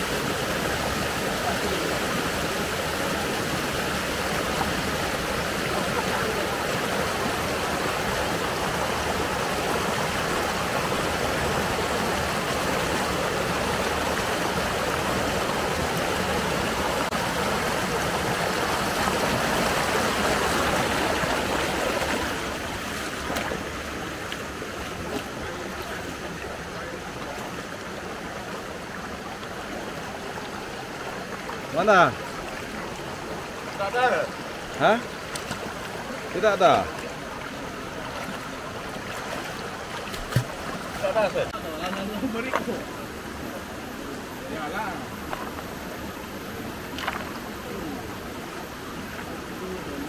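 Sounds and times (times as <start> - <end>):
river water flowing: 0.0 - 50.0.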